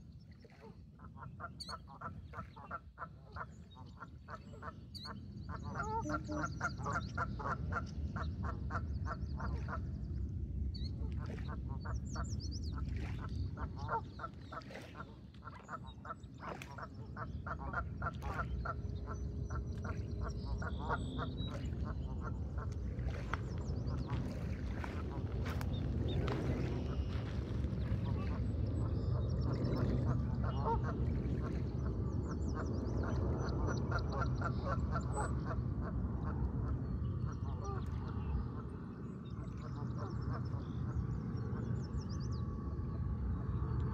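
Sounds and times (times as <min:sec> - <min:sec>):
steady low rumble: 0:03.2 - 0:43.9
waterfowl quacking: 0:05.5 - 0:09.8, 0:13.0 - 0:23.4, 0:29.8 - 0:31.6.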